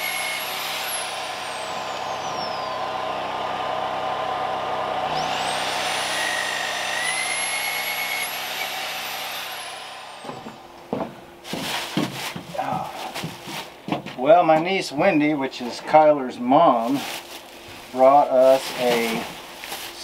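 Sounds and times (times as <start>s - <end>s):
electric drill boring into wood: 0.0s - 10.6s.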